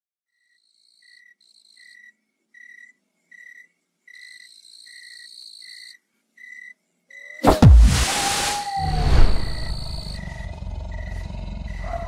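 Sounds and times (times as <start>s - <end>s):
crickets chirping: 8.1s - 12.0s.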